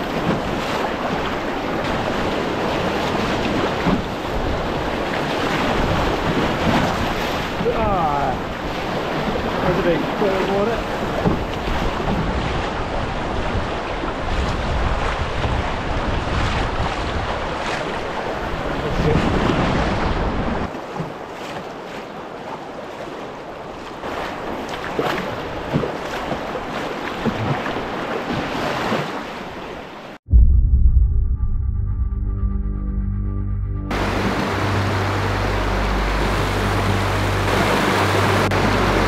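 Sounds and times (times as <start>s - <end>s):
rushing river water: 0.0s - 30.2s, 33.9s - 39.0s
wind buffeting microphone: 10.9s - 20.7s.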